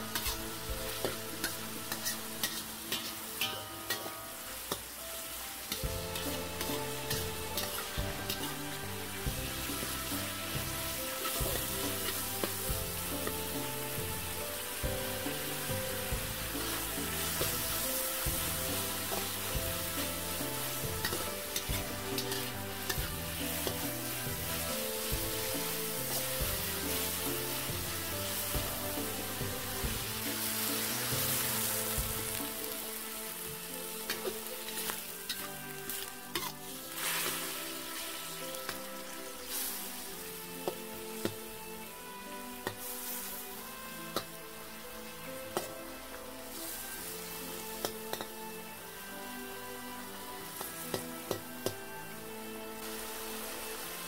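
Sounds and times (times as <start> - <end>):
background music: 0.0 - 54.0
food sizzling in a wok: 0.0 - 54.0
metal spatula tapping wok: 0.1 - 5.0, 5.6 - 8.7, 14.8 - 27.7, 34.0 - 36.5, 47.8 - 48.4, 50.6 - 51.8.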